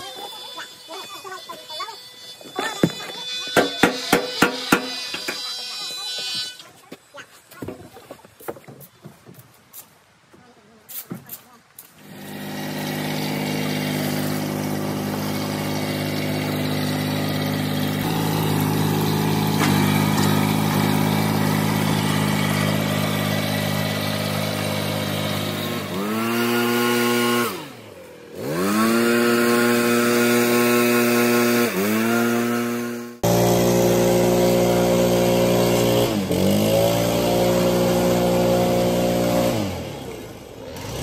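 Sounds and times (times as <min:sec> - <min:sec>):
small engine revving: 0:12.0 - 0:41.0.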